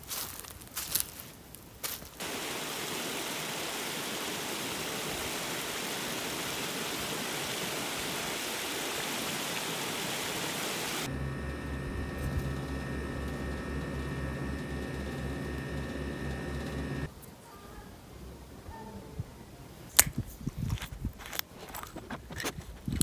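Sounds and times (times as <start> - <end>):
water rushing over weir: 2.2 - 17.1
low pulsing hum: 11.0 - 17.1.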